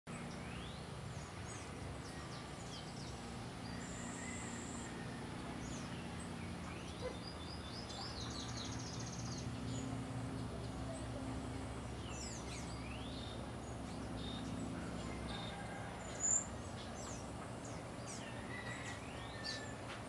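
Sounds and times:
steady low hum: 0.1 - 20.0
birds chirping and whistling: 12.0 - 19.8.

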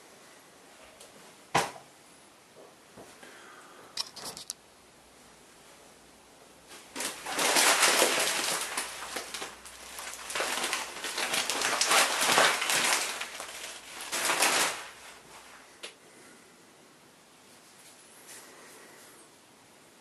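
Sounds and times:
plastic bag rustling: 6.6 - 15.8
grain shifting in bag: 6.8 - 15.7.

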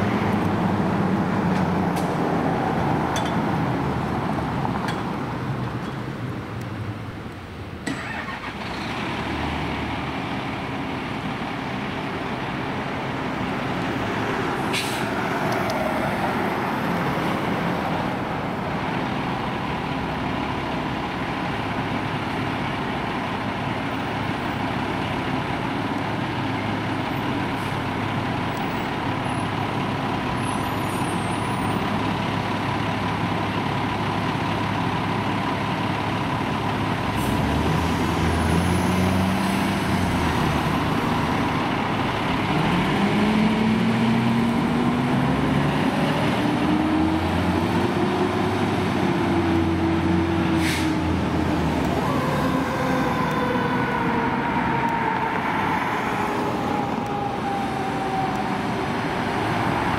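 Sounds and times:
diesel engine idling and revving: 0.0 - 59.9
short air hiss: 50.6 - 51.0.

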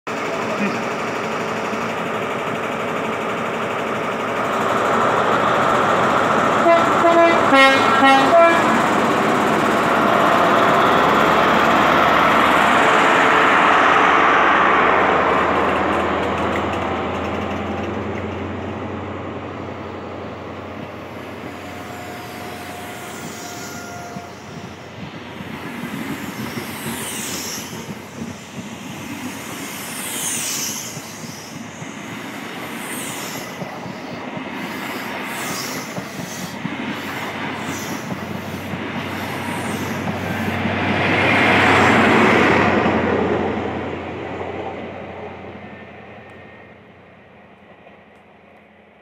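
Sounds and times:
diesel train engine powering up: 0.1 - 8.0, 8.6 - 49.0
train horn toots: 6.6 - 8.8, 21.4 - 24.6.

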